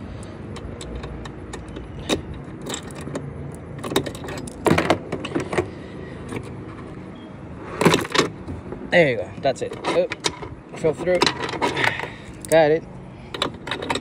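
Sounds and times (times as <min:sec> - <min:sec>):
plastic handle clicking and rattling: 0:00.6 - 0:05.7
keys jangling on a ring: 0:02.2 - 0:03.2.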